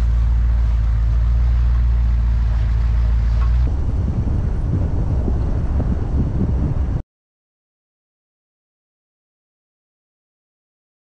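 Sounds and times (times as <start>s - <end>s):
car engine drone: 0.0s - 7.0s
tyres rumbling on dirt road: 0.0s - 7.0s
wind buffeting microphone: 2.9s - 7.0s.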